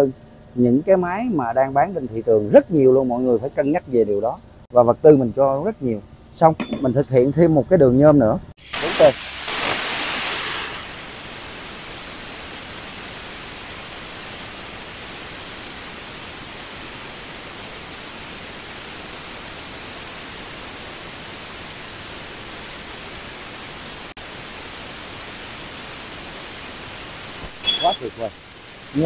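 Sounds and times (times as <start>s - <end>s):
plasma cutter hissing: 8.6s - 29.0s.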